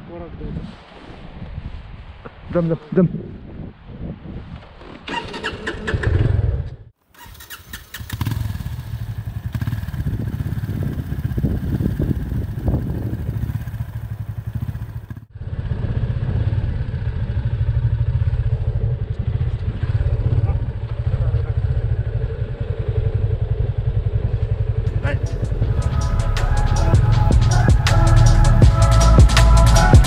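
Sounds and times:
motorcycle engine running: 0:07.3 - 0:30.0.

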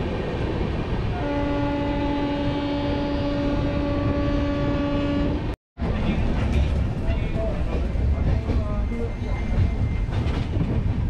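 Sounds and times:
moving train running noise: 0:00.0 - 0:11.0
train horn: 0:01.2 - 0:05.5.

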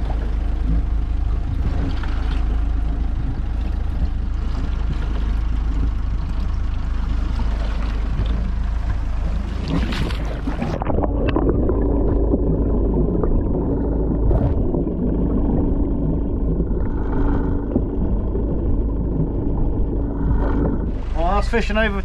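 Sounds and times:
muffled underwater rumble: 0:00.0 - 0:22.0
steady low hum: 0:00.0 - 0:22.0
splash into water: 0:09.5 - 0:11.7.

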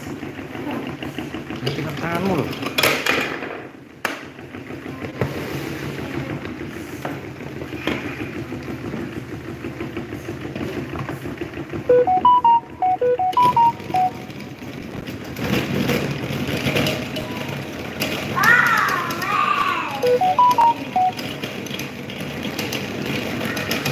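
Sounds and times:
electronic beeps tune: 0:11.9 - 0:14.4, 0:20.0 - 0:21.4.

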